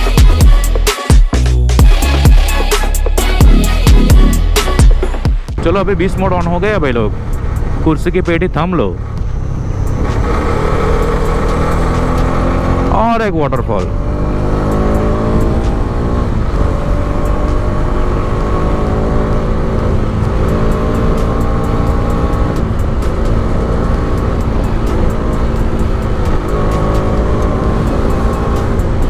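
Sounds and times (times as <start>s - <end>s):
wind and road noise rumble: 5.6s - 29.0s
motorcycle engine shifting gears: 8.8s - 29.0s.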